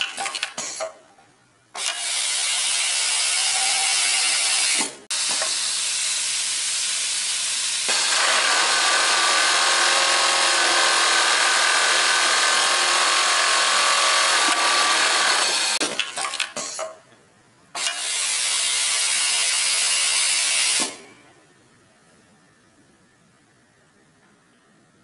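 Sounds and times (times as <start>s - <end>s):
sewing machine whirring: 1.8s - 16.5s.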